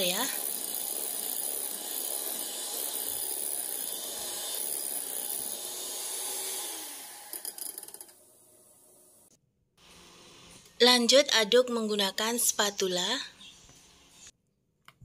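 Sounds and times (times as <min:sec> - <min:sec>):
electric hand mixer whirring: 0:00.0 - 0:08.0.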